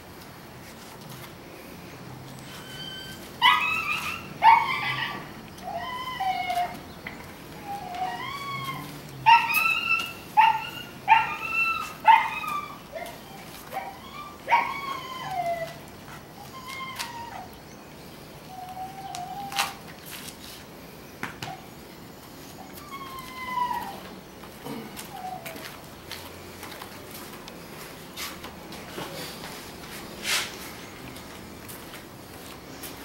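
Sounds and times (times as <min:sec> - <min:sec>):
puppy yipping and whining: 0:02.4 - 0:06.8, 0:07.6 - 0:17.6, 0:18.5 - 0:19.8, 0:22.5 - 0:24.1.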